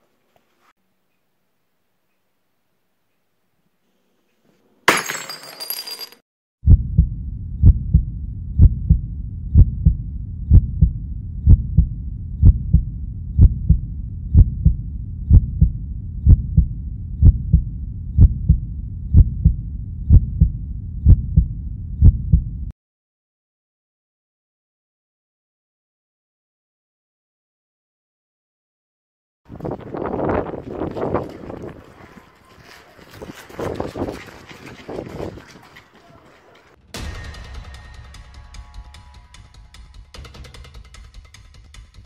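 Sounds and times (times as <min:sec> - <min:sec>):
heartbeat double thump: 0:06.6 - 0:22.7
sudden crash: 0:36.9 - 0:40.3.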